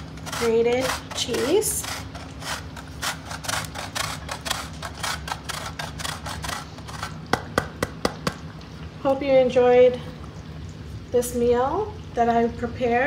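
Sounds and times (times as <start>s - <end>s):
cheese grating on metal grater: 0.0s - 7.3s.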